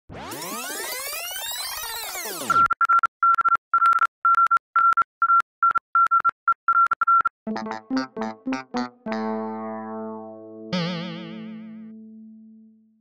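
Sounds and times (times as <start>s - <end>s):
electric piano music: 7.5s - 13.0s.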